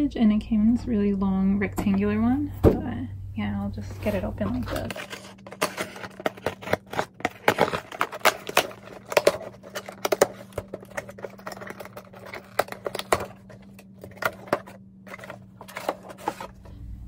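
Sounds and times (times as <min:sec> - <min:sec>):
cardboard box being opened: 0:04.0 - 0:16.7.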